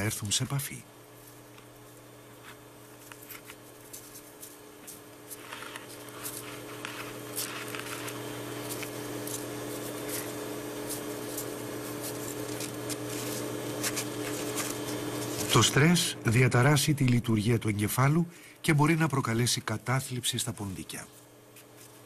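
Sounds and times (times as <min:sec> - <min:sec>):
mice scratching in cages: 0:01.2 - 0:15.7, 0:21.0 - 0:22.0.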